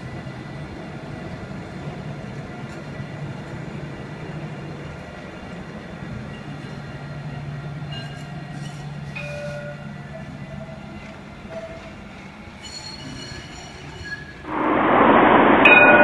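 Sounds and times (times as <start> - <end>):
tram running along track: 0.0 - 16.0.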